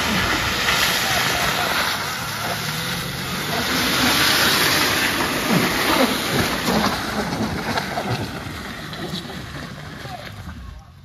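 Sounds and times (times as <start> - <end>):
car engine pulling hard: 0.0 - 11.0
tyres spinning and spraying dirt: 0.0 - 11.0.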